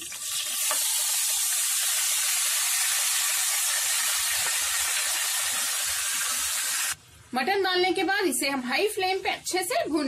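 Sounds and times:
meat sizzling in oil: 0:00.0 - 0:07.0.

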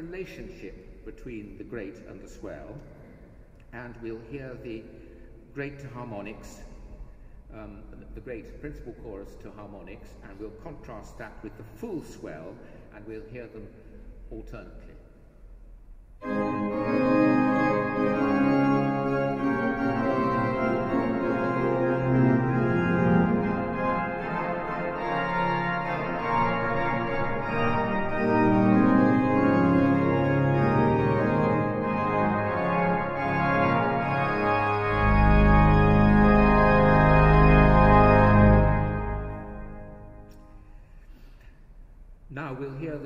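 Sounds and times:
deep organ bass: 0:16.2 - 0:40.3
pipe organ playing chords: 0:16.2 - 0:40.4.

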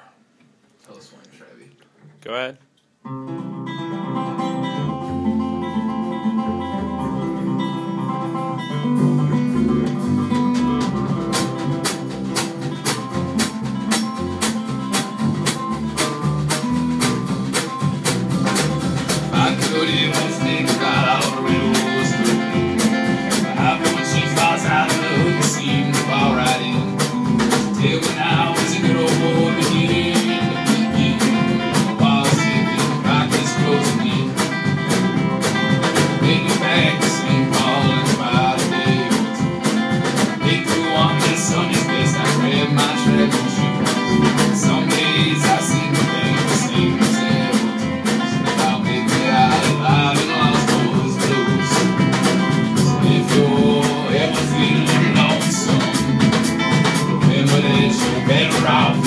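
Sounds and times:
strummed acoustic guitars: 0:03.0 - 0:59.0
upright bass: 0:03.4 - 0:59.0
drum kit beat: 0:04.4 - 0:59.0
man singing: 0:19.0 - 0:59.0.

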